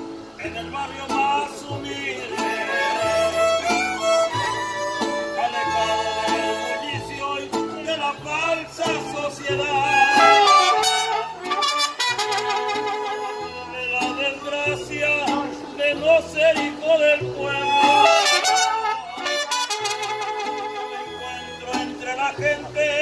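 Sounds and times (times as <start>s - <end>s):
stepping bass guitar: 0.0s - 23.0s
strummed guitar: 0.0s - 23.0s
violins playing melody: 2.3s - 7.2s, 9.6s - 15.0s, 17.5s - 22.0s.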